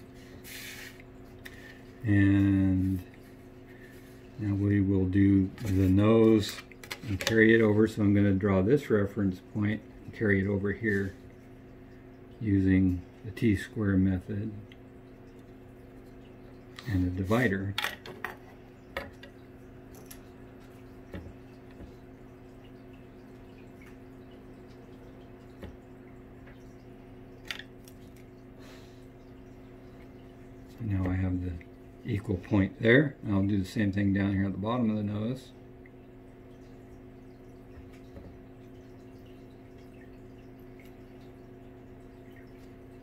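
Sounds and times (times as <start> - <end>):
room hum: 0.0 - 43.0.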